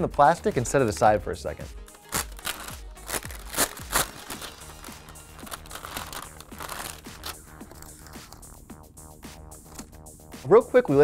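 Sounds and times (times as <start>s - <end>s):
soft background music with beat: 0.0s - 11.0s
plastic sleeve crinkling: 1.9s - 8.7s, 9.6s - 10.0s.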